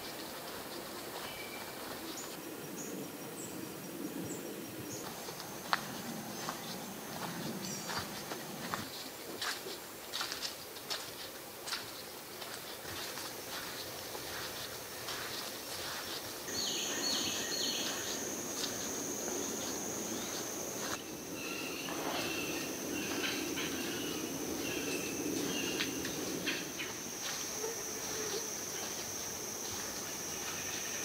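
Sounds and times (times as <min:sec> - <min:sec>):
high-pitched insect trill: 0:13.4 - 0:31.0.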